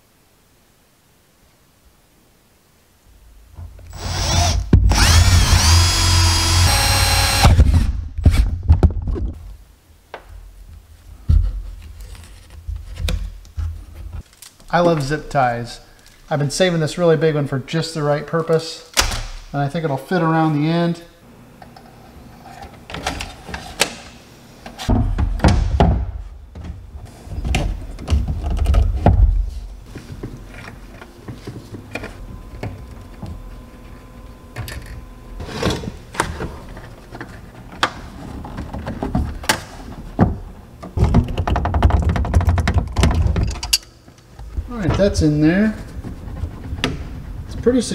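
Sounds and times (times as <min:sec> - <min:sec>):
plastic clicks and knocks: 0:40.2 - 0:43.8.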